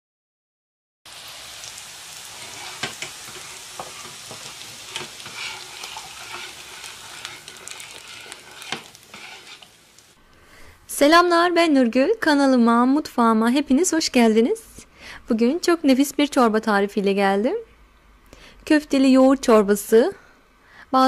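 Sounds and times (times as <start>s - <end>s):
meatballs sizzling: 1.1s - 10.2s.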